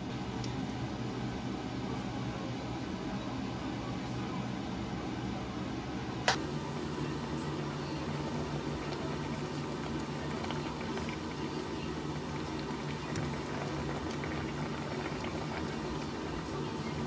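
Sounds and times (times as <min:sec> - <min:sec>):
water boiling with pops: 0:06.2 - 0:17.0.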